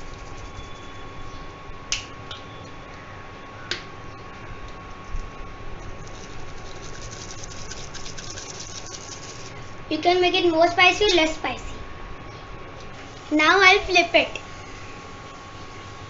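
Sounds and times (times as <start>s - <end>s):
steady hum with high tone: 0.0s - 16.0s
spice flakes ticking: 5.9s - 9.6s.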